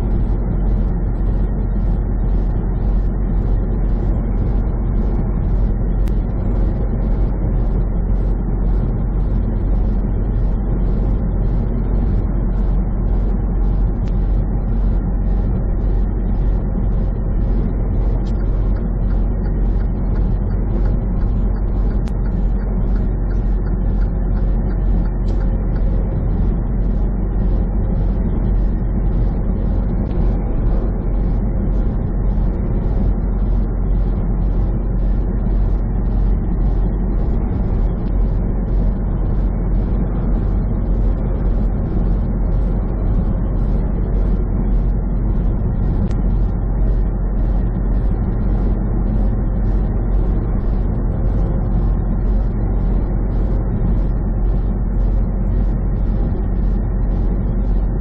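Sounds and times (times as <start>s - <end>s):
vehicle road and engine rumble: 0.0s - 58.0s
faint regular ticking: 15.9s - 27.6s.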